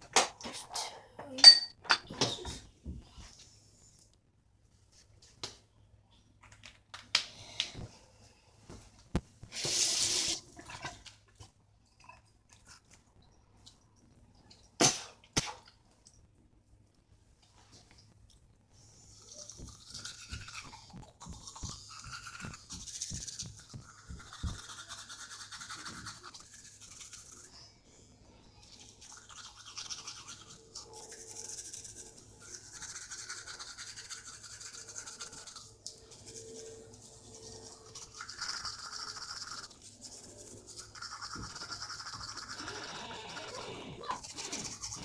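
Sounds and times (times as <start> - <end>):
toothbrush scrubbing teeth: 12.0 - 13.1, 19.0 - 27.8, 28.6 - 45.0.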